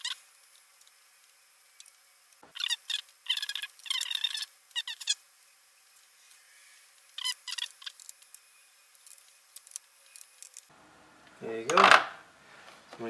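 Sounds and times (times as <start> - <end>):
screwdriver squeaking: 2.5 - 5.2, 7.1 - 8.4.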